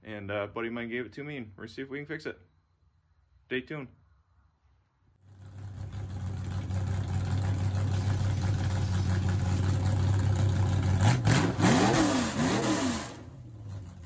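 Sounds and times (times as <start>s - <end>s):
car engine idling and revving: 5.2s - 14.0s.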